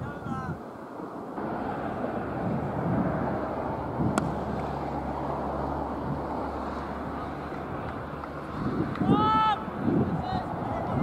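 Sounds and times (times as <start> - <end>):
wind rumble on microphone: 0.0 - 11.0
cricket bat striking ball: 4.1 - 4.7.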